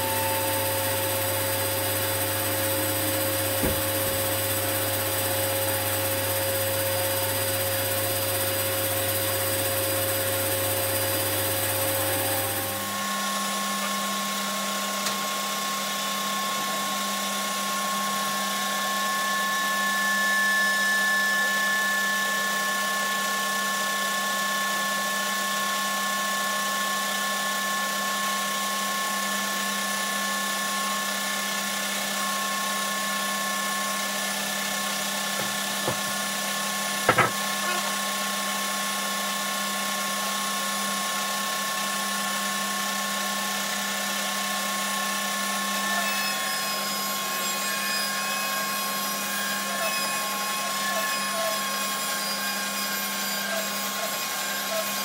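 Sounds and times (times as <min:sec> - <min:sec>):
bandsaw cutting wood: 0:00.0 - 0:13.1, 0:32.0 - 0:38.2, 0:45.6 - 0:55.0
sharp knocks: 0:03.5 - 0:04.3, 0:35.4 - 0:36.2, 0:37.1 - 0:37.4.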